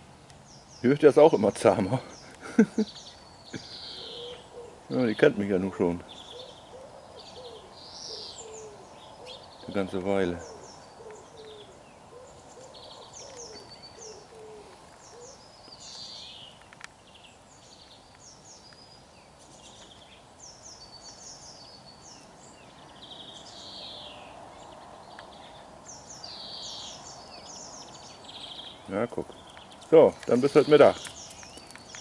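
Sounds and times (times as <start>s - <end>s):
songbirds chirping: 0.0s - 32.0s
low hooting bird call: 2.0s - 5.2s, 5.8s - 16.6s.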